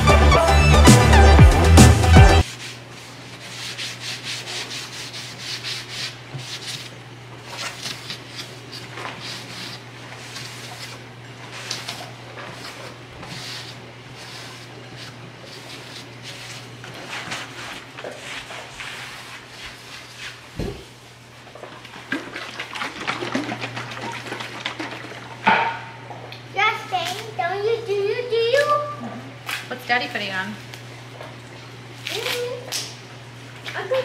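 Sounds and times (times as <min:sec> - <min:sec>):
cloth rag rubbing wood: 0:02.4 - 0:20.5.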